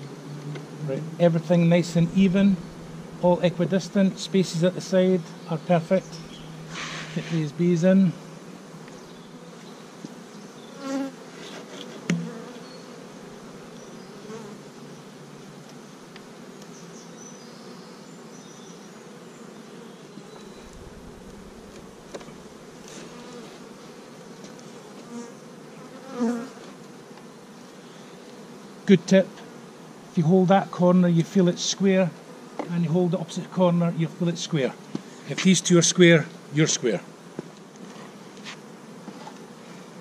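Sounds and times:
honeybees buzzing: 0.0s - 40.0s
sharp knock: 12.1s - 12.4s.

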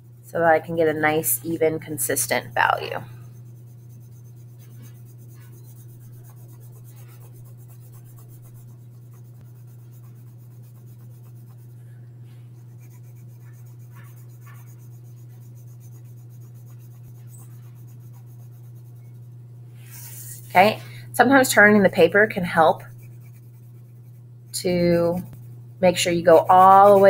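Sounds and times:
steady low hum: 0.0s - 27.0s
pencil scratching on paper: 0.6s - 20.8s, 21.6s - 27.0s.

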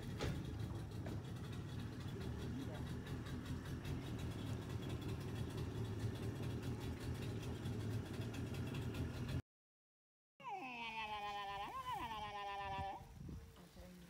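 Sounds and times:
boat motor running: 0.0s - 9.4s.

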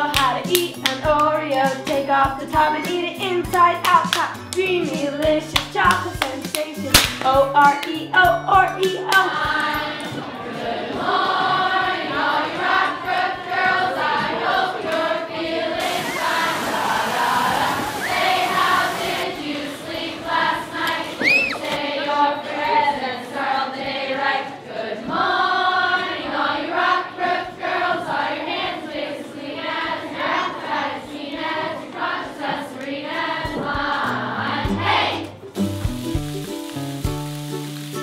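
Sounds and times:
girls singing together: 0.0s - 35.4s
high rising squeal: 15.8s - 19.2s, 21.2s - 21.7s
lower-pitched music: 34.7s - 38.0s.

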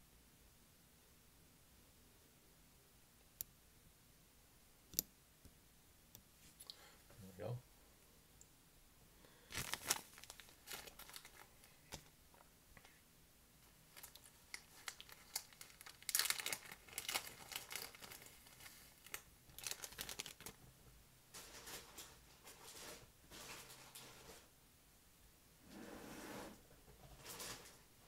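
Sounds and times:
plastic packaging crinkling: 9.5s - 12.1s, 13.9s - 20.6s.

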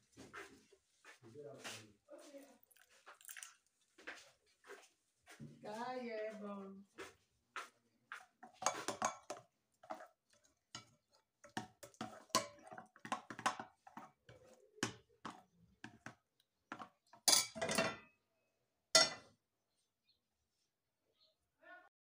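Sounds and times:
frying pan clattering: 8.2s - 18.1s, 19.0s - 19.3s
metal spoon scraping glass bowl: 8.4s - 14.6s.

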